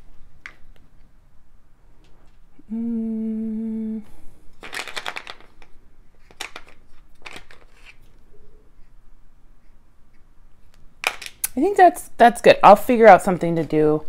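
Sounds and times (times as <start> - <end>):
person humming: 2.6 - 4.4
beads clattering in plastic box: 4.6 - 5.7.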